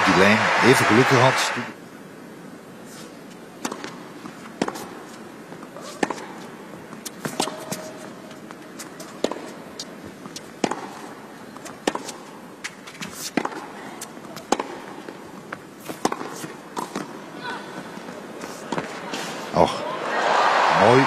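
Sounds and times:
arena background noise: 0:00.0 - 0:21.0
racquets striking tennis ball: 0:03.6 - 0:05.0, 0:05.6 - 0:17.2
tennis ball bouncing: 0:03.6 - 0:17.2.

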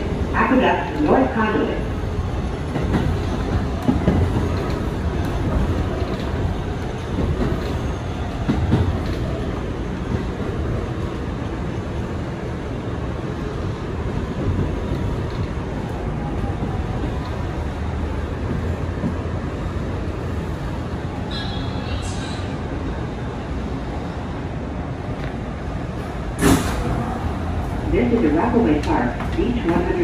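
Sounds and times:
train wheels rumbling on rail: 0:00.0 - 0:30.0
rail joint clicks and knocks: 0:02.4 - 0:12.0, 0:13.7 - 0:20.0.

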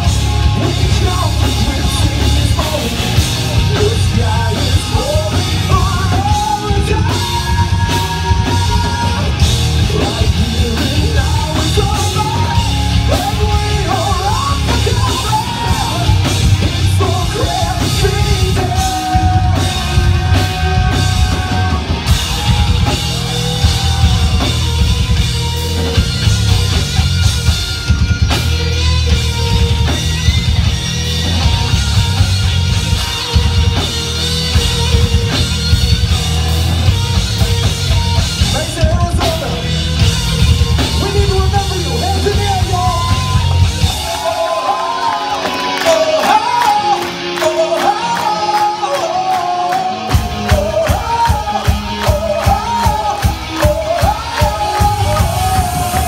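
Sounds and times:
person singing and yelling: 0:00.0 - 0:25.1, 0:38.4 - 0:56.0
heavy rock band playing: 0:00.0 - 0:56.0.

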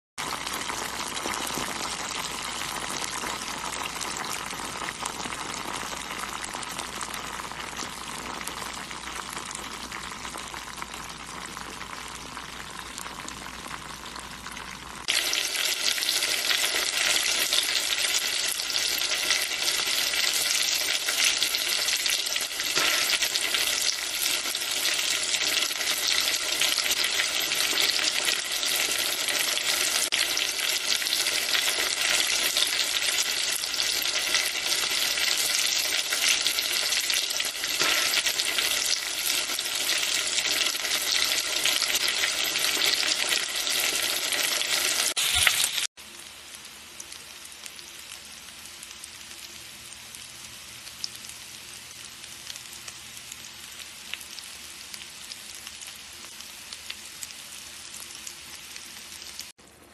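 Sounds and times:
chicken sizzling in hot oil: 0:00.2 - 0:59.9
oil bubbling: 0:00.2 - 0:59.9.

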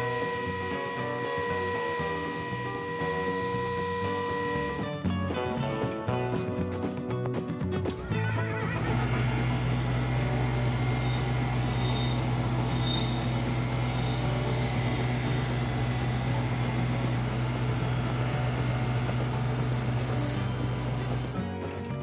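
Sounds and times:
belt grinder grinding knife: 0:00.0 - 0:04.8, 0:08.8 - 0:21.4.

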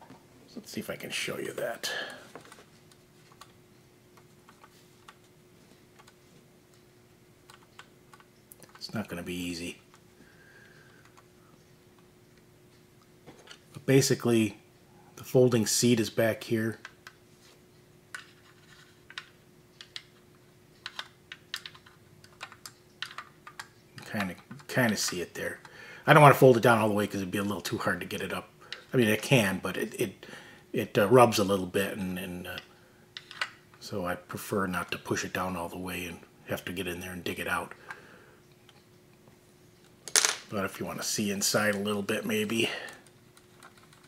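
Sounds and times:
faint steady hum: 0:00.0 - 0:44.0
fingers clicking plastic model: 0:20.8 - 0:23.7.

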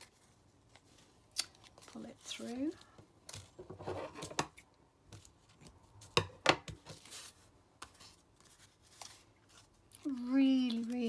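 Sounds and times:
paper rustling: 0:06.8 - 0:11.0.

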